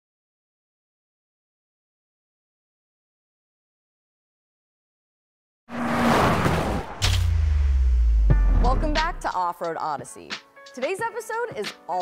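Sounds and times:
rushing whoosh with low rumble: 0:05.7 - 0:09.3.

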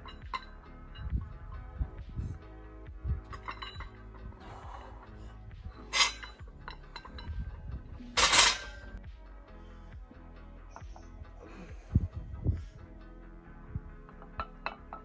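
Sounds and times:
barbell plates clinking and rattling: 0:00.0 - 0:01.6, 0:03.2 - 0:04.4, 0:05.7 - 0:09.0, 0:14.0 - 0:15.0.

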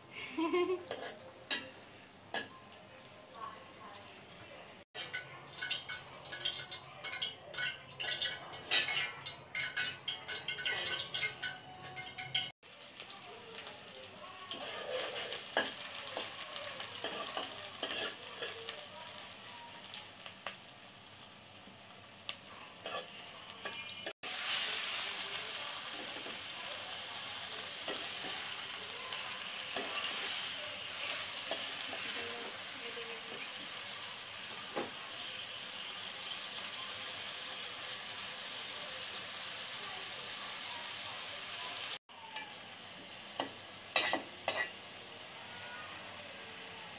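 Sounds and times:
food sizzling in hot oil: 0:00.0 - 0:46.9
metal spoon scraping a pot: 0:00.8 - 0:01.7, 0:07.6 - 0:12.5, 0:14.5 - 0:15.8.

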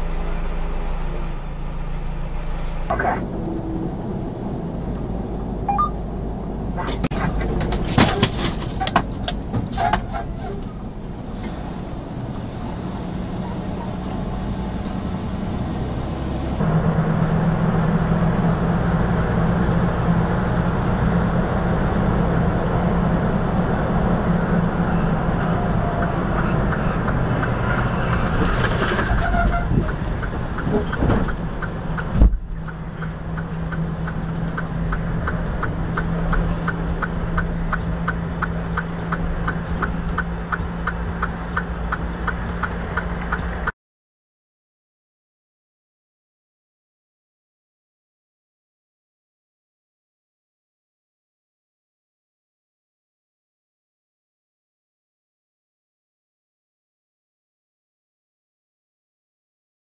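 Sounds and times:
truck engine hum and road noise: 0:00.0 - 0:43.7
regular ticking: 0:30.1 - 0:43.7.

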